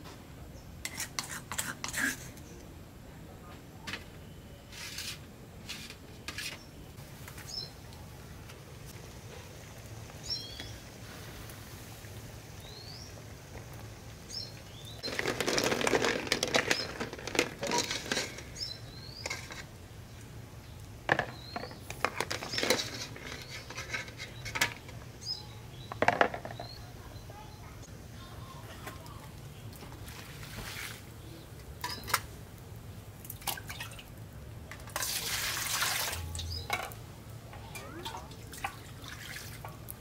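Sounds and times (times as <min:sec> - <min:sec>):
bird chirping: 0:10.2 - 0:10.9, 0:18.4 - 0:19.6, 0:25.2 - 0:27.7
eggs splashing into water: 0:15.0 - 0:18.6, 0:33.2 - 0:36.9, 0:37.8 - 0:40.0
ladle clattering in metal pot: 0:15.2 - 0:18.6.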